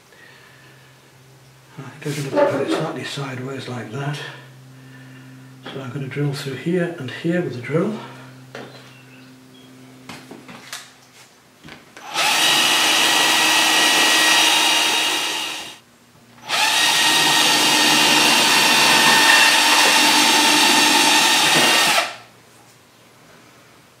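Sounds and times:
cordless drill boring through wood: 12.0 - 15.8, 16.4 - 22.2.

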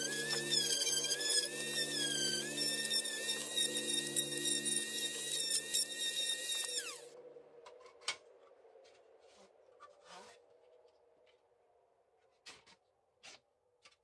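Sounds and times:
orbital sander whining: 0.0 - 7.0.

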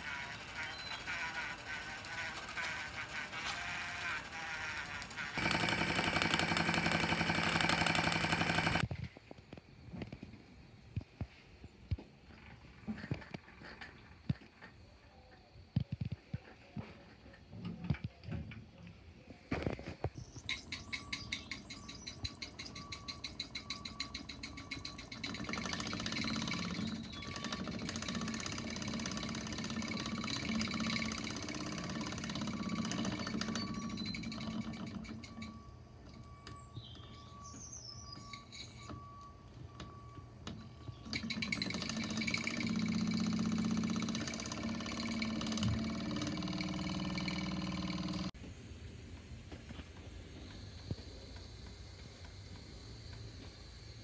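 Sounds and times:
steam engine cylinder chuffing: 0.0 - 8.8, 20.4 - 35.6, 41.0 - 48.3
machinery humming: 0.0 - 8.9.

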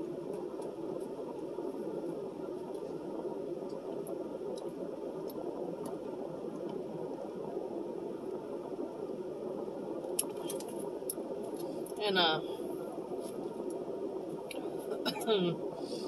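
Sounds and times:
air conditioner hissing: 0.0 - 16.0.

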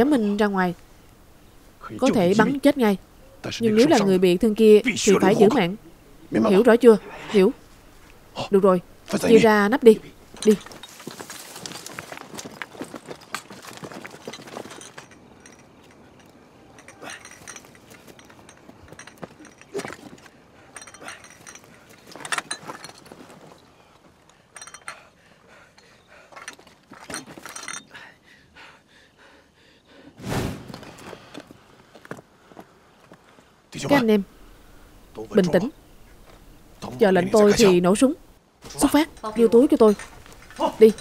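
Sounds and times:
grass rustling: 0.0 - 24.7, 30.2 - 41.0
rifles and gear clinking: 10.0 - 28.0, 38.6 - 41.0
footsteps: 10.2 - 24.1.

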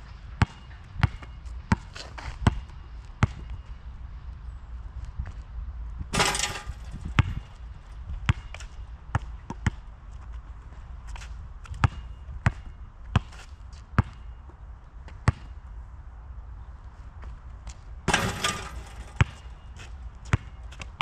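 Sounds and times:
basketball bouncing on asphalt: 0.4 - 2.6, 3.2 - 3.6, 6.2 - 7.6, 8.3 - 9.8, 11.7 - 13.4, 14.0 - 14.4, 15.1 - 15.5, 18.1 - 20.9
basketball rattling hoop: 6.2 - 7.5, 18.1 - 19.6.

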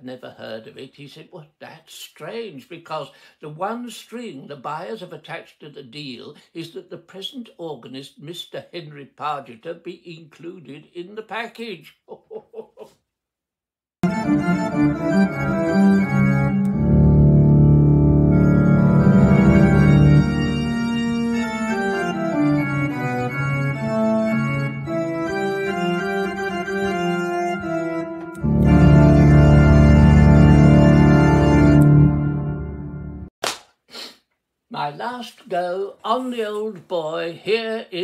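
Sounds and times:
organ playing sustained chords: 14.0 - 33.3.

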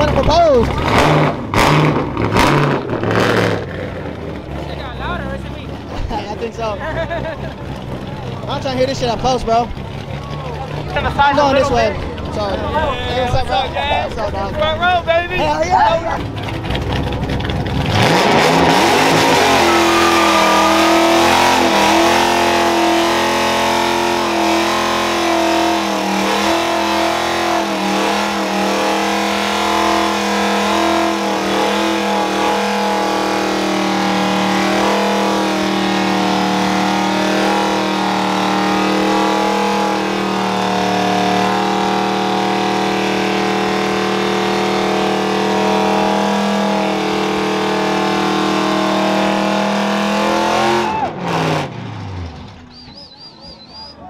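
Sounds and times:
car engine at high revs: 0.0 - 53.6
tyres spinning on pavement: 3.9 - 22.9.

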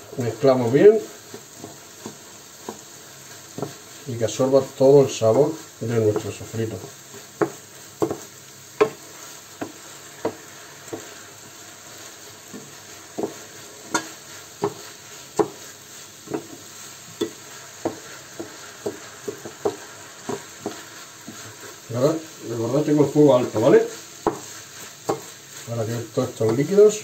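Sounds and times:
rice sizzling in frying pan: 0.0 - 27.0
wooden spoon knocking pan: 7.3 - 11.2, 12.5 - 15.6, 16.2 - 21.6, 23.8 - 25.4.

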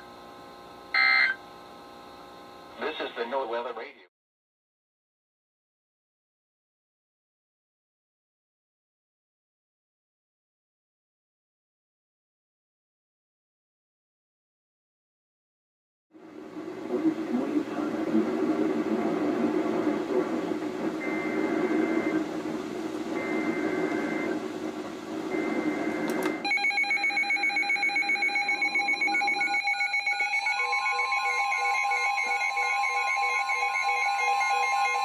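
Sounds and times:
warbling alert data bursts: 1.0 - 1.4, 25.3 - 35.0
weather radios beeping and chirping: 1.0 - 1.4, 18.7 - 22.3, 23.1 - 24.4, 25.3 - 35.0
hissing radio signal: 2.7 - 4.1, 16.4 - 26.4.

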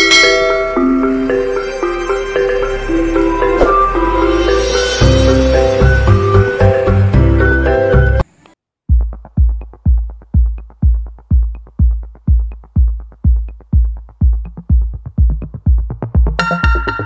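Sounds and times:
electronic dance music: 0.0 - 8.3, 8.9 - 17.0
heavy kick drum: 8.9 - 17.0.

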